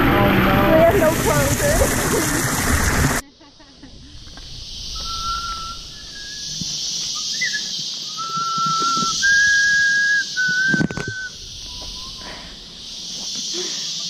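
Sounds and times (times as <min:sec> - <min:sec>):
high drone of insects: 0:03.2 - 0:14.0
long whistled notes: 0:04.6 - 0:12.6.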